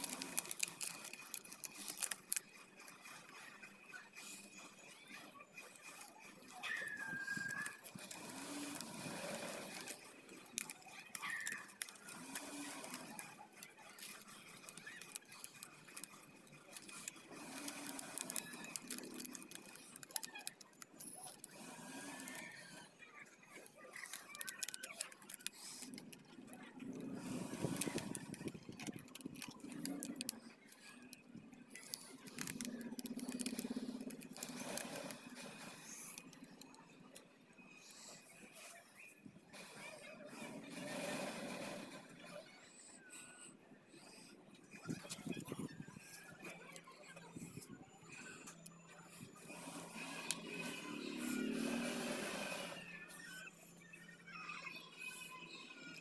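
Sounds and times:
plastic strips crinkling and clicking: 0.0 - 22.8, 23.4 - 37.3.

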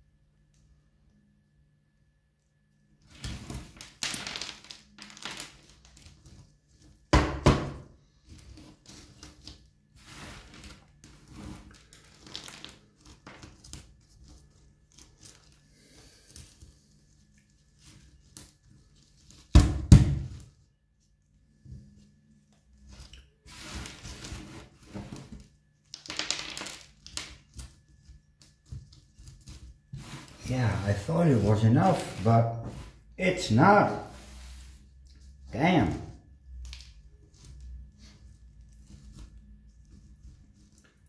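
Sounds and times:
potting mix crumbling and rustling: 3.0 - 41.0.

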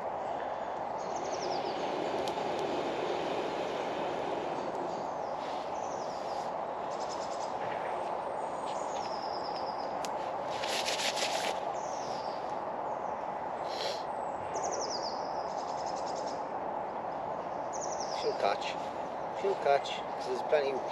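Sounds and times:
steady rushing noise: 0.0 - 13.7
small birds chirping: 0.2 - 16.5, 17.2 - 20.9
faint clicks: 2.1 - 2.7.

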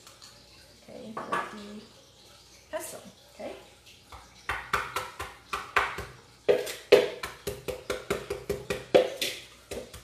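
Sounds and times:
wooden pestle pounding in a bowl: 4.5 - 10.0.

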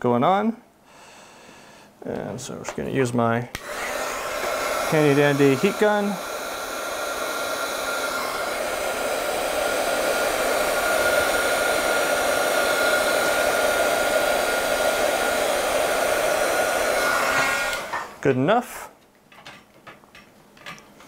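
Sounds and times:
heat gun blowing with whine: 3.5 - 18.2.

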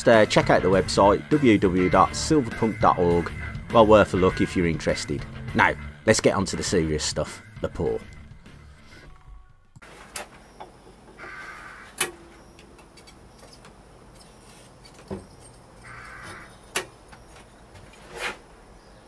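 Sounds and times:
harsh rasping sounds: 17.8 - 18.5.

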